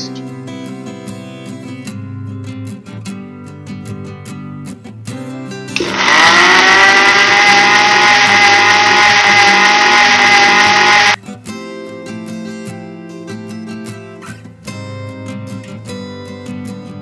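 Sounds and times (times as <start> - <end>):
mixer grinder motor running: 5.8 - 11.2.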